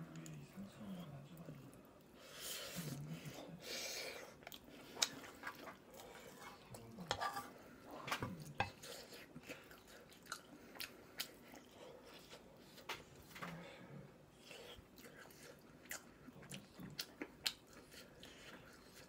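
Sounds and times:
person chewing: 0:04.0 - 0:07.0, 0:08.3 - 0:12.9, 0:14.3 - 0:19.0.

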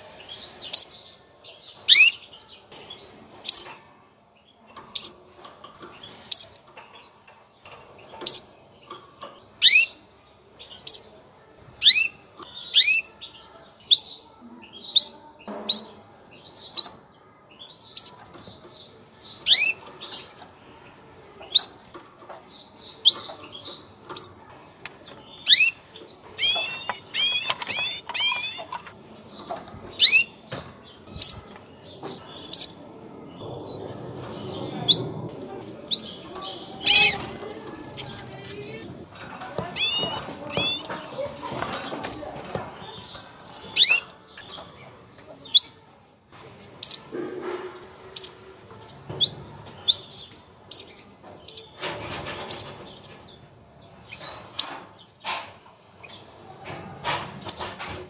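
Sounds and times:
canary chirping: 0:00.0 - 0:55.4, 0:57.4 - 0:58.0.

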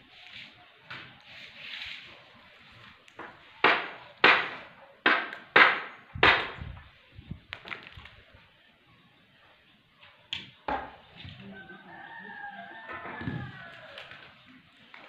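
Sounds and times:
sharp bangs: 0:03.6 - 0:06.8.

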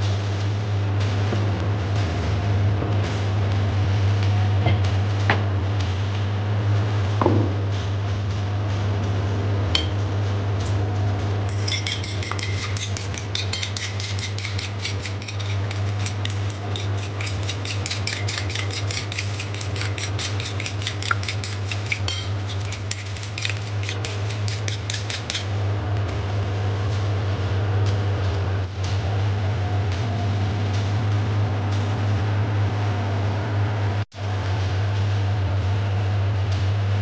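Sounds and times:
steady low hum: 0:00.0 - 0:37.0
utensil clicking against bowl: 0:11.5 - 0:25.5.

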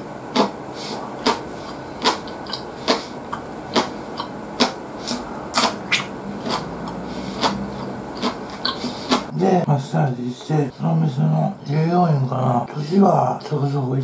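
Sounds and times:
man chewing food: 0:00.3 - 0:09.3.

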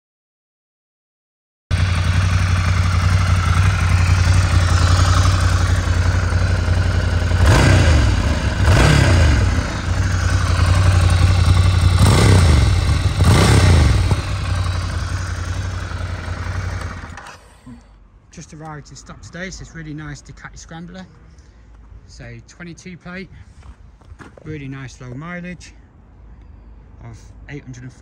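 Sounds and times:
motorcycle engine idling and revving: 0:01.7 - 0:17.7.

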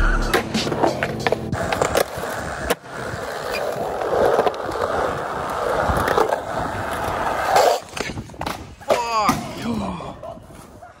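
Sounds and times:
skateboard wheels rolling: 0:00.3 - 0:09.0
skateboard clack: 0:00.3 - 0:09.5.

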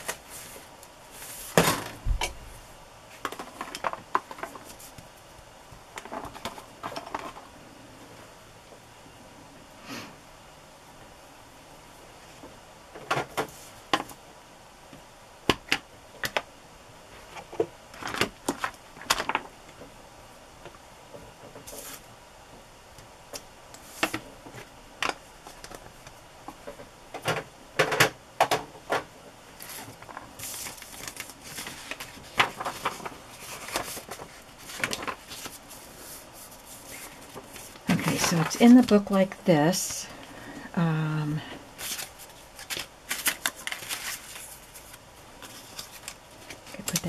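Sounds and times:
paper handling: 0:29.6 - 0:39.1, 0:41.8 - 0:47.0.

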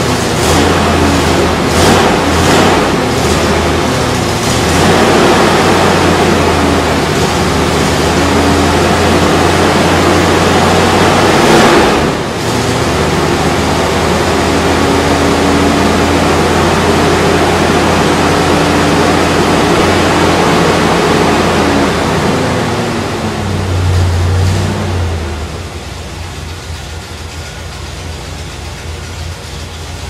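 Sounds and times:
car engine running loud: 0:00.0 - 0:30.0.

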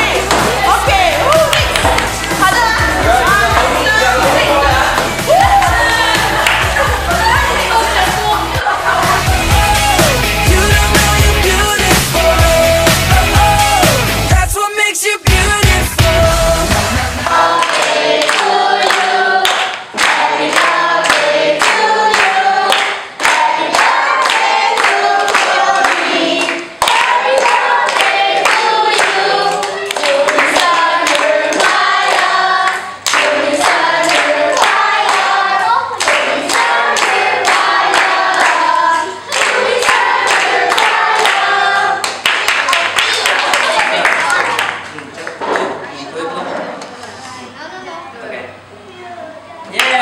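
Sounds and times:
people clapping: 0:00.0 - 0:10.2, 0:17.2 - 0:45.8, 0:49.7 - 0:50.0
group singing birthday song: 0:00.0 - 0:44.8.

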